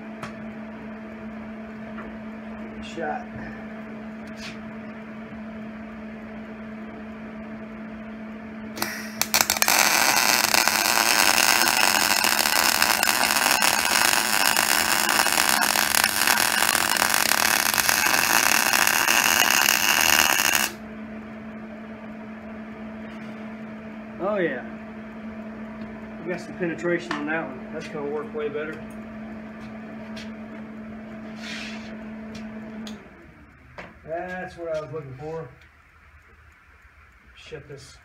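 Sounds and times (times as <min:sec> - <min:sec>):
steady low hum: 0:00.0 - 0:38.0
welder arc crackling: 0:08.7 - 0:20.8.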